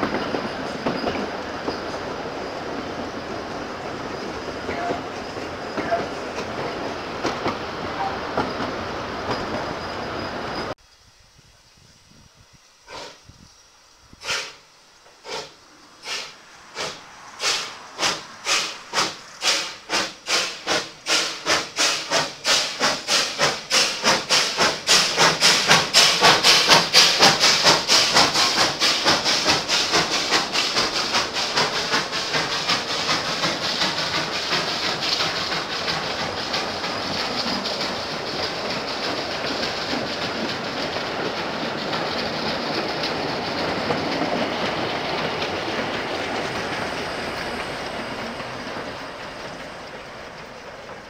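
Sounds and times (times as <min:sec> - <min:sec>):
rolling clatter of train cars: 0:00.0 - 0:10.8, 0:14.2 - 0:51.0
steam locomotive exhaust chuffs: 0:11.8 - 0:13.3, 0:14.0 - 0:51.0.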